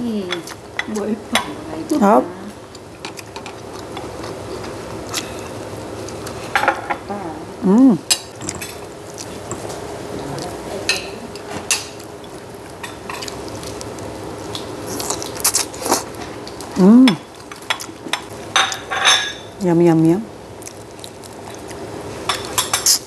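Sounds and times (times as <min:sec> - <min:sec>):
person humming: 0:07.0 - 0:08.1, 0:16.8 - 0:17.2
wet chewing and lip smacks: 0:12.0 - 0:16.7, 0:20.6 - 0:21.8.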